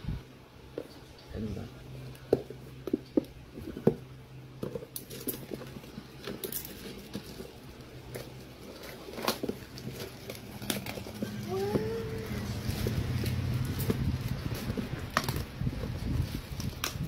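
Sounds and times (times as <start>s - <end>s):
plastic packaging crinkling: 4.6s - 17.0s.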